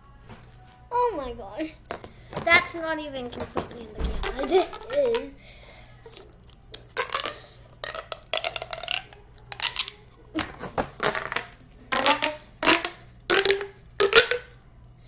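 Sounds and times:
plastic pop tubes popping: 3.3 - 14.6.

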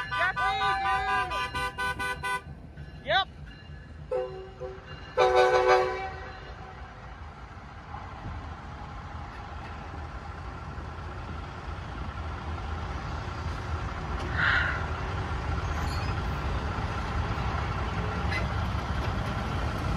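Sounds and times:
locomotive horn blast: 0.0 - 2.5, 4.1 - 6.8
low engine rumble: 3.6 - 19.9.

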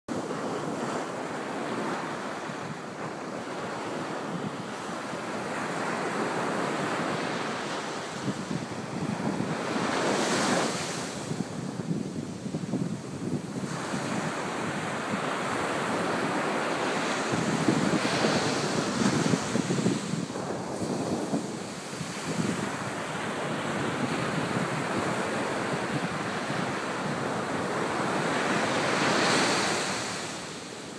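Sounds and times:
wind buffeting microphone: 0.2 - 30.9
surf breaking on beach: 12.6 - 30.7.

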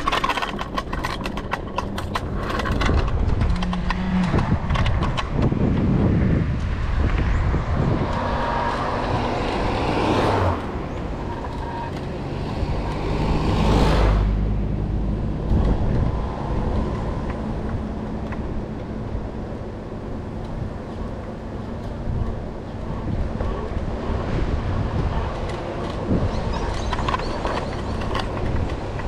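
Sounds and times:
cars passing: 0.0 - 29.0
road traffic noise: 0.0 - 29.0.

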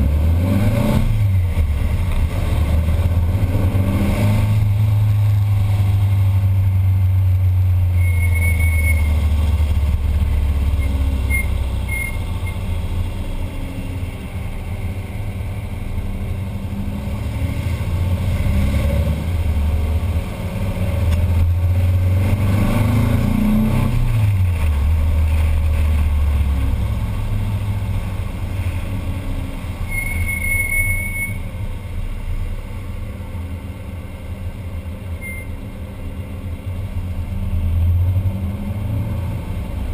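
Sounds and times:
engine running on the road: 0.0 - 39.9
squeaky brakes squealing: 7.9 - 9.2, 10.7 - 12.6, 29.8 - 31.5.

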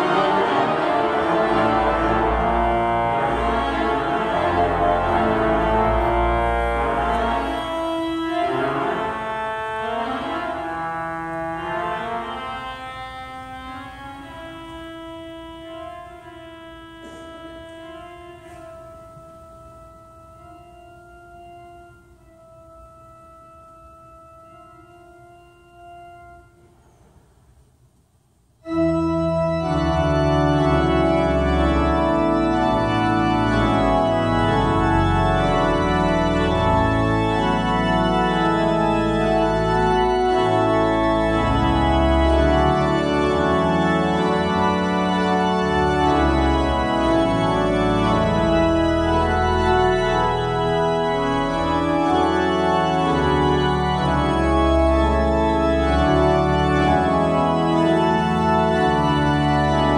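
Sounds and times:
pipe organ chords: 0.0 - 27.7, 28.3 - 59.9.

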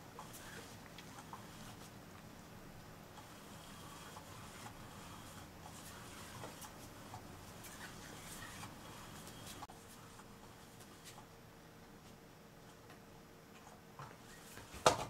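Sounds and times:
faint toy motor whir: 3.2 - 10.2.

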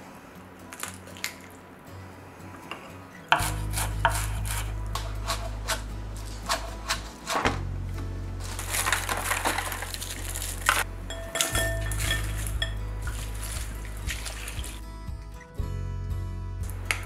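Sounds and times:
knife chopping on wooden board: 3.3 - 5.8.

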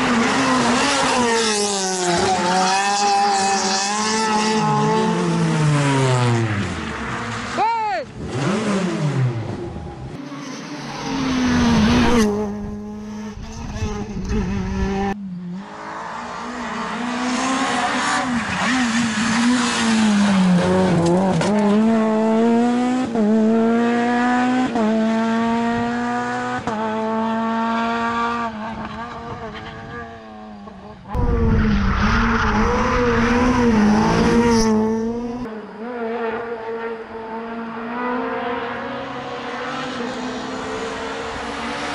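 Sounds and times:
rally car engine revving with upshifts: 0.0 - 41.9.

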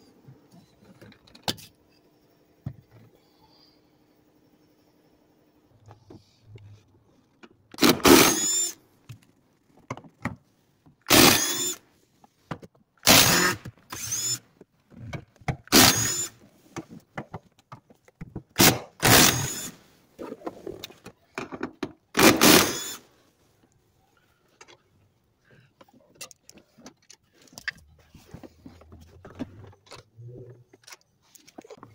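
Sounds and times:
power tool whining bursts: 7.8 - 8.8, 11.1 - 11.8, 13.1 - 14.4, 15.7 - 16.3, 19.0 - 19.8, 22.2 - 23.0.

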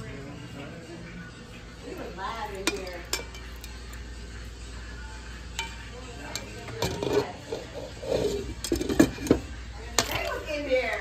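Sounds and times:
pots and utensils clinking: 2.0 - 4.2, 5.4 - 11.0.

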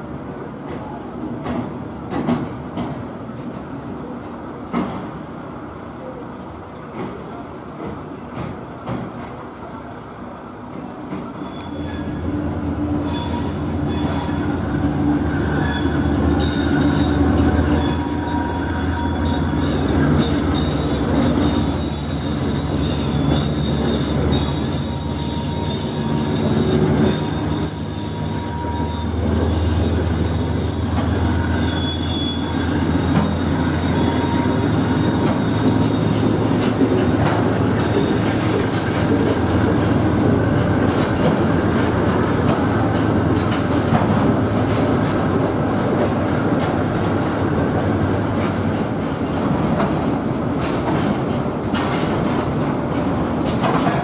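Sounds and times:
high-pitched wheel squeal: 11.4 - 14.6, 15.2 - 37.0, 37.8 - 38.5.

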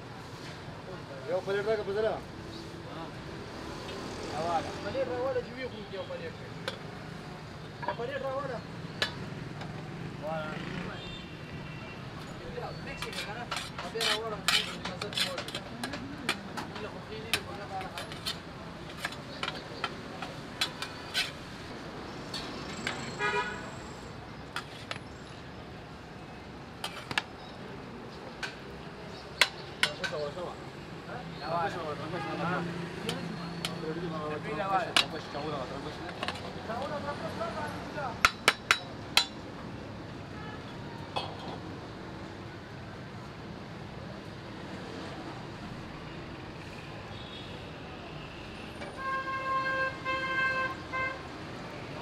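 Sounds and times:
roadside background noise: 0.0 - 52.0
street background: 0.0 - 52.0
metal ladle scraping pot: 12.9 - 16.4, 17.3 - 21.6
metal utensil clinking on pot: 13.0 - 16.4
car horn toot: 23.1 - 23.7.

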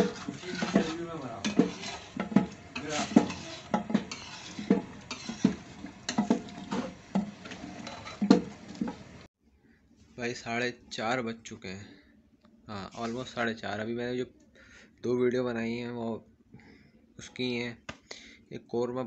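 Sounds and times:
metal ladle scraping a pot: 0.0 - 9.3, 12.9 - 13.4.

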